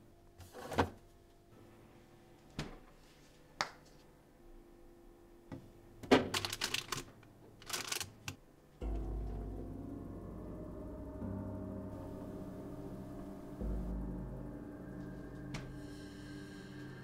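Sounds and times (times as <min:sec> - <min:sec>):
low steady drone: 0:08.8 - 0:17.0.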